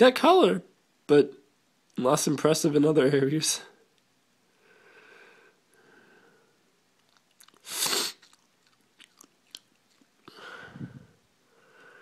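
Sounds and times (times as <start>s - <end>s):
soft breathing: 4.5s - 6.8s, 10.2s - 12.0s
sharp nasal breath: 7.6s - 8.2s.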